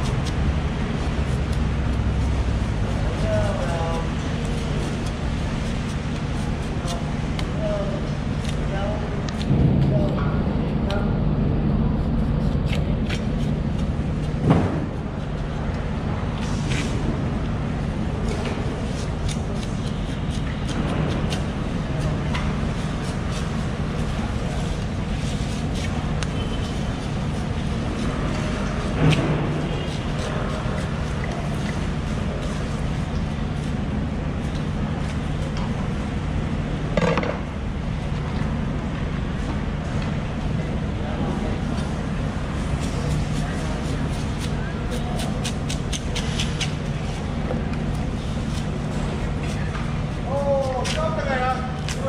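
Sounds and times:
low motor hum: 0:00.0 - 0:52.0
knife scraping fish skin: 0:42.7 - 0:47.2.

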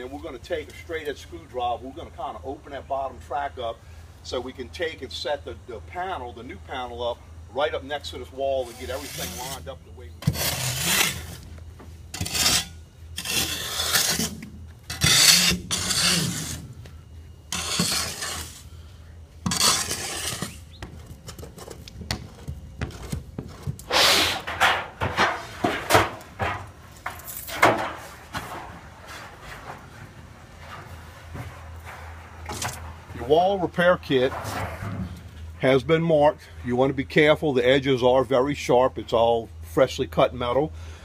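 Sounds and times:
spade scraping through sand: 0:08.6 - 0:11.4, 0:12.1 - 0:16.8, 0:17.5 - 0:18.7, 0:19.4 - 0:20.8
screwdriver scraping metal: 0:14.9 - 0:16.6, 0:17.5 - 0:18.6, 0:19.5 - 0:20.6.

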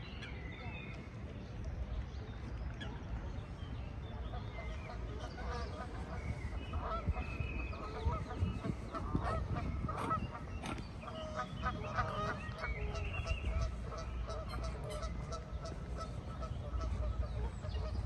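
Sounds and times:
low background rumble: 0:02.9 - 0:18.0
geese honking: 0:04.8 - 0:18.0.

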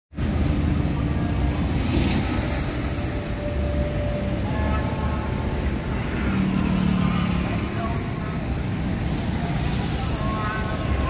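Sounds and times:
road traffic rumble: 0:00.1 - 0:11.0.

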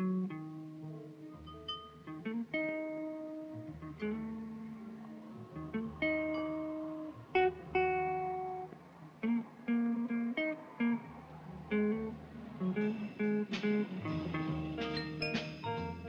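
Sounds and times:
guitar picking notes: 0:00.0 - 0:16.0.

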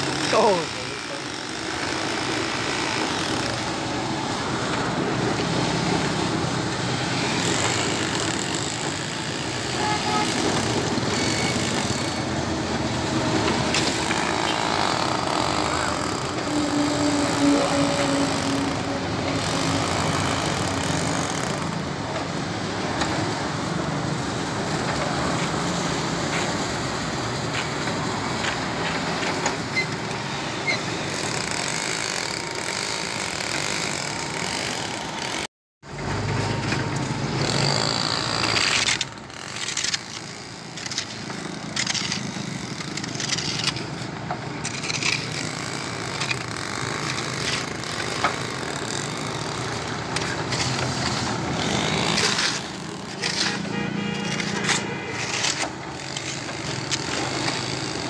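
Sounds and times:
concrete mixer churning: 0:00.0 - 0:58.0
shovels scraping sand and gravel: 0:37.5 - 0:45.5, 0:49.2 - 0:57.8.

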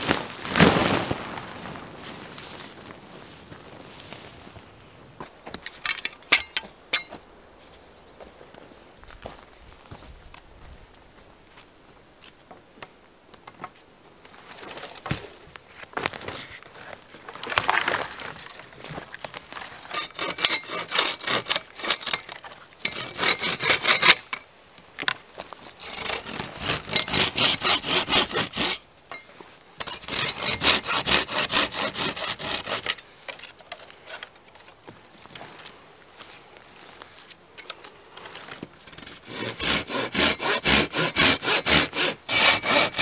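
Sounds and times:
hand saw cutting wood: 0:19.8 - 0:24.3, 0:25.8 - 0:28.8, 0:29.8 - 0:33.0, 0:38.9 - 0:43.0.

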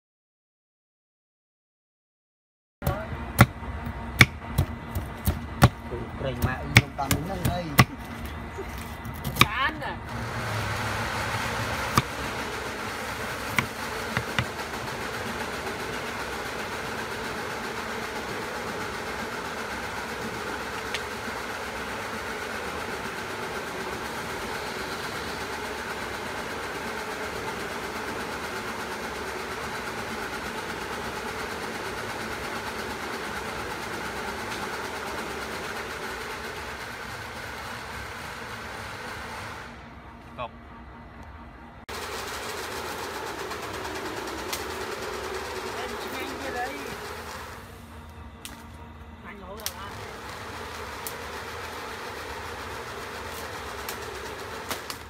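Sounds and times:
steady buzzing drone: 0:02.8 - 0:55.0
knife chopping on wooden board: 0:06.4 - 0:08.0, 0:13.5 - 0:14.5.

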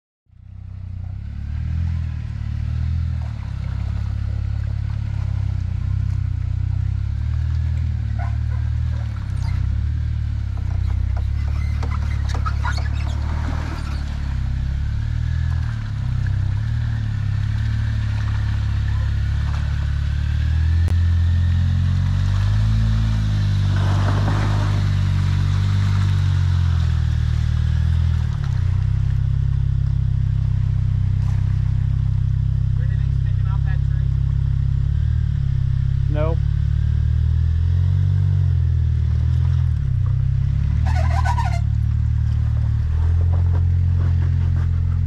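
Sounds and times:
engine running at low revs: 0:00.3 - 0:45.0.

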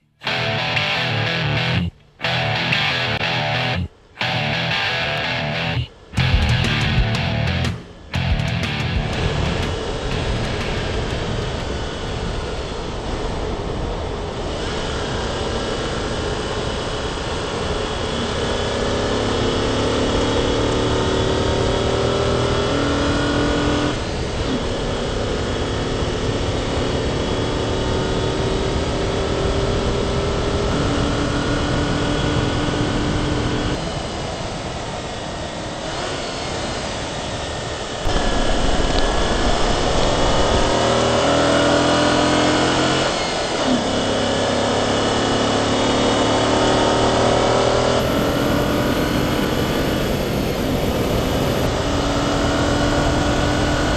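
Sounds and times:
car engine accelerating: 0:00.3 - 0:12.5, 0:38.0 - 0:53.9
wind and road noise: 0:07.6 - 0:53.9.

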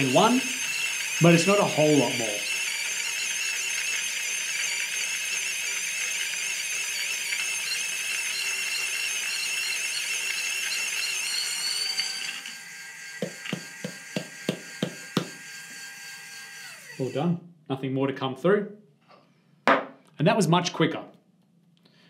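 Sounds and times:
coffee grinder whine: 0:00.0 - 0:17.4
grinder top tapped: 0:13.2 - 0:15.4.

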